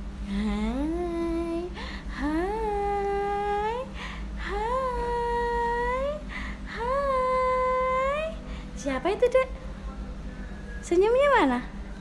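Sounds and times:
woman humming: 0.2 - 8.4
breaths: 1.7 - 2.2, 3.9 - 4.4, 6.2 - 6.7, 8.4 - 8.8.

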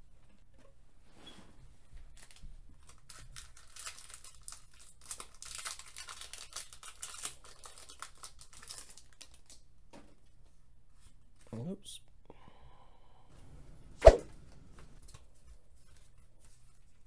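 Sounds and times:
foil wrapper crinkling and tearing: 2.1 - 9.7.

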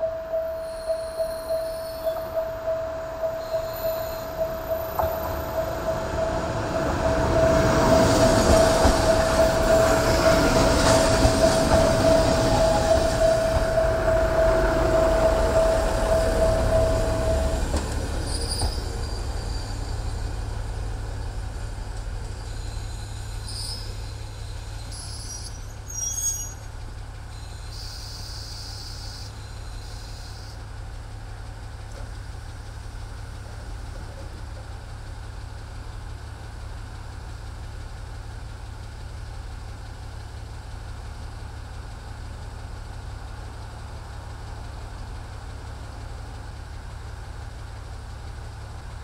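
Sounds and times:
brakes squealing: 0.0 - 30.9
diesel engine idling: 0.0 - 49.0
train wheels rumbling: 0.0 - 49.0.

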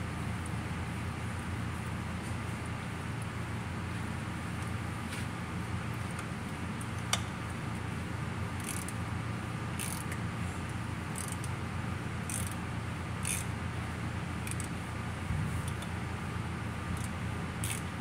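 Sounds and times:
steady low hum: 0.0 - 18.0
hand ratchet clicking: 8.6 - 9.0, 9.8 - 10.2, 11.1 - 11.5, 12.3 - 12.6, 13.2 - 13.5, 14.4 - 14.7, 17.0 - 17.9.

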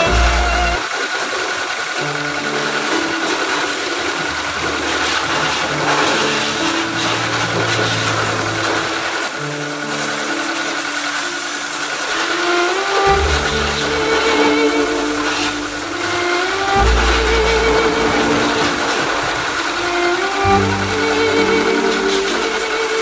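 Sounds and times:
music playing: 0.0 - 0.8, 12.1 - 23.0
pressure washer spraying: 0.0 - 23.0.

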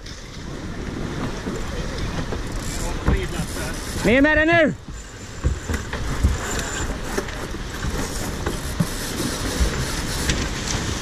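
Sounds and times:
rush of wind and water: 0.0 - 11.0.

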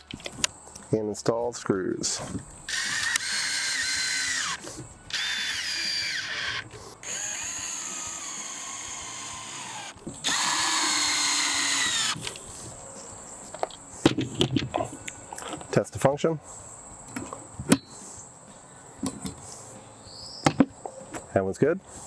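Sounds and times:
cordless drill motor whine: 2.7 - 12.2.

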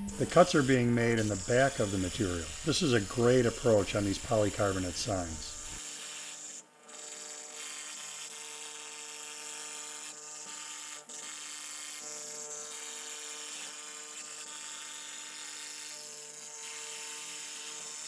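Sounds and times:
bit cutting plastic hiss: 0.0 - 8.3
router motor whine: 0.0 - 18.0.

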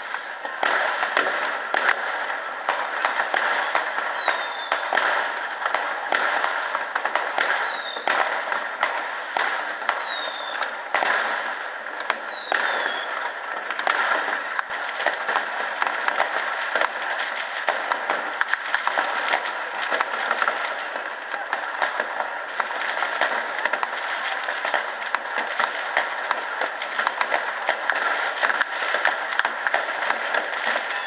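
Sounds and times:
fireworks crackling and banging: 0.0 - 31.0
fireworks whistles falling in pitch: 3.5 - 5.1, 6.9 - 8.2, 9.4 - 10.7, 11.7 - 13.2.

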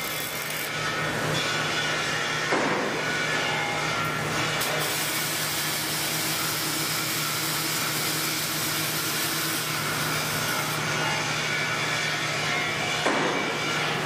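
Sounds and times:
welding arc hissing: 0.0 - 0.8, 4.6 - 10.8.

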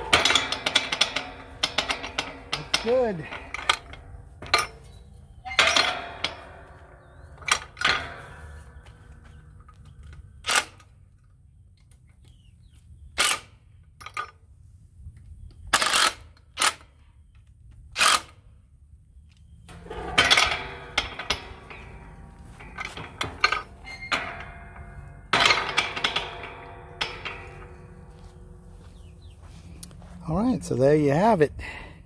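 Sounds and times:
metal gate rattling and clanking: 0.0 - 11.0, 19.6 - 31.4.

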